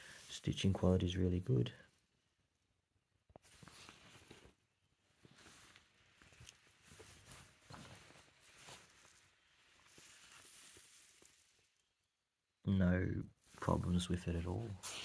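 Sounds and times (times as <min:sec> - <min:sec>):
jersey fabric rustling: 0:03.4 - 0:11.9, 0:13.4 - 0:15.0.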